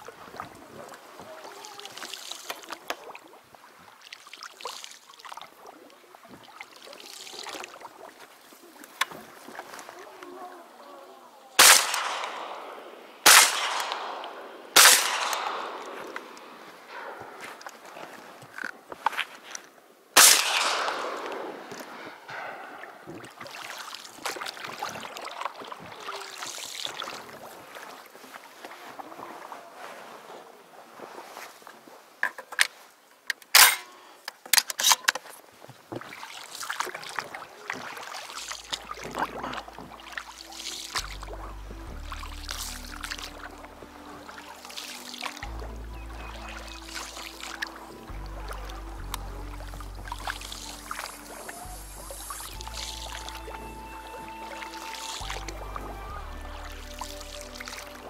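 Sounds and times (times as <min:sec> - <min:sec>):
reed stems brushing hull: 0:00.0 - 0:20.3, 0:21.2 - 0:58.0
water swishing: 0:00.0 - 0:34.2, 0:35.2 - 0:58.0
shotgun shots with echo: 0:11.6 - 0:17.4, 0:20.2 - 0:22.8
background music with low bass: 0:39.6 - 0:58.0.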